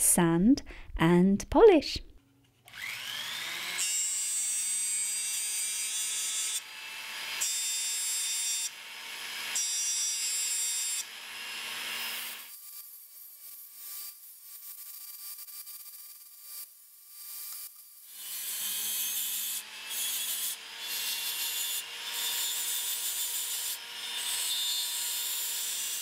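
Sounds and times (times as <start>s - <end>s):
rotary tool whining: 2.7s - 4.2s.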